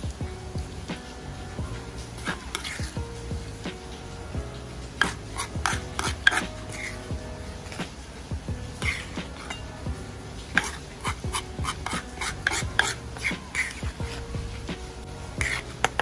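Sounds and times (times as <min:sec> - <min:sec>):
utensil scraping stone mortar: 0:02.2 - 0:03.0, 0:05.0 - 0:07.0, 0:08.8 - 0:09.6, 0:10.6 - 0:14.2, 0:15.4 - 0:16.0.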